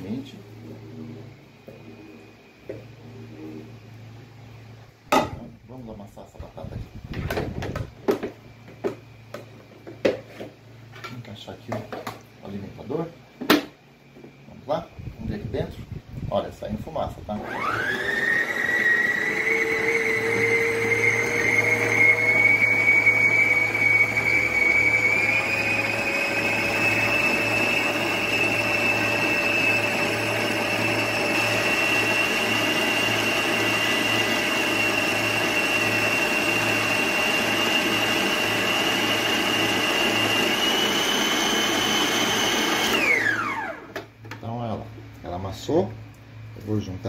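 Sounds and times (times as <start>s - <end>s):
stand mixer motor whine: 17.3s - 44.1s.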